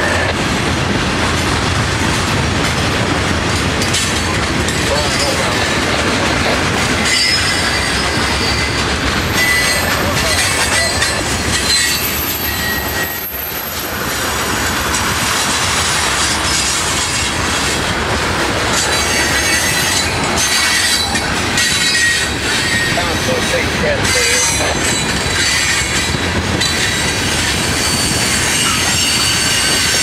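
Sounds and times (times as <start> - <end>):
train wheels rumbling on rail: 0.0 - 30.0
high-pitched wheel squeals: 7.0 - 14.0, 18.8 - 30.0.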